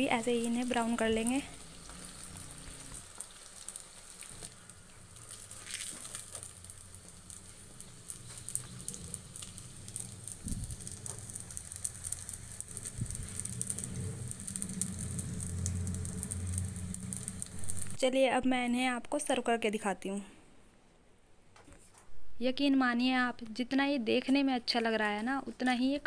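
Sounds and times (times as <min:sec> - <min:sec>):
oil sizzling and crackling: 0:00.0 - 0:18.1
low steady hum: 0:04.4 - 0:19.4.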